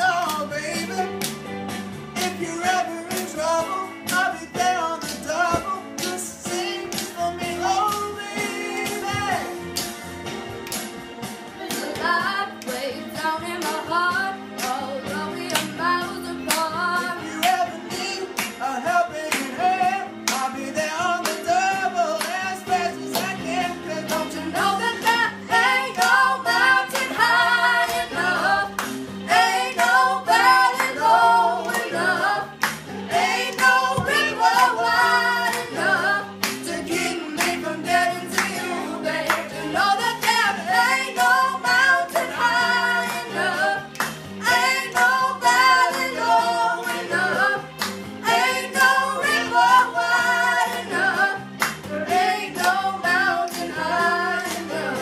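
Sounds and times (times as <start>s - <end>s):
instrumental accompaniment: 0.0s - 55.0s
man and woman singing together: 2.2s - 9.6s, 11.7s - 28.7s, 29.3s - 55.0s.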